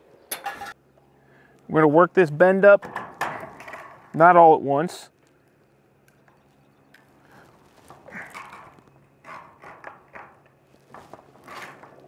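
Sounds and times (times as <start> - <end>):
sheet metal scraping and creaking: 7.3 - 12.0.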